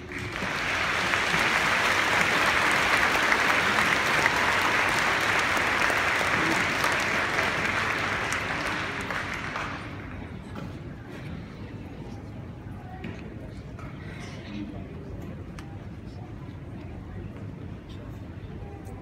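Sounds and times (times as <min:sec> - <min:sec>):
large audience applauding: 0:00.0 - 0:10.3.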